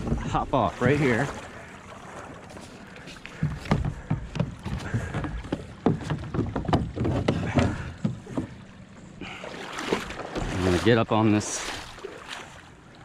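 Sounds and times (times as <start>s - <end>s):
knocks on plastic kayak: 3.4s - 8.5s.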